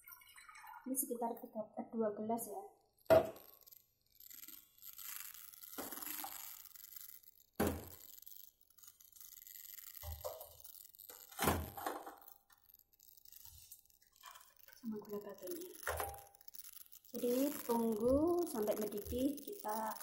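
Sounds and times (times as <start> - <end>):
water pouring into a metal wok: 0.0 - 1.2
sugar dropped into water: 2.9 - 20.0.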